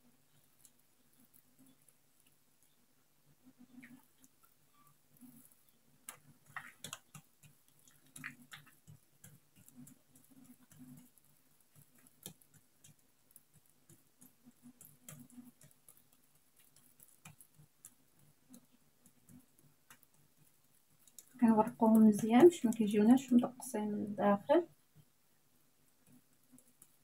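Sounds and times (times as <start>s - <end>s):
hands slapping dough: 6.0s - 23.4s.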